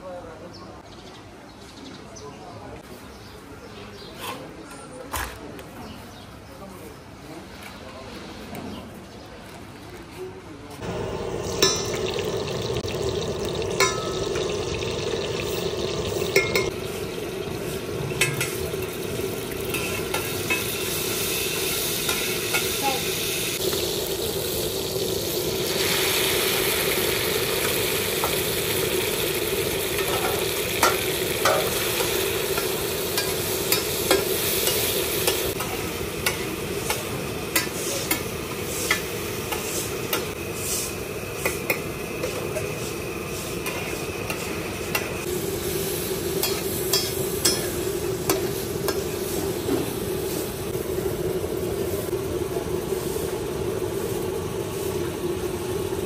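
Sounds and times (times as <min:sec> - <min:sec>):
oil sizzling on hot plate: 0:10.8 - 0:56.0
metal spatula scraping hot plate: 0:18.0 - 0:22.9.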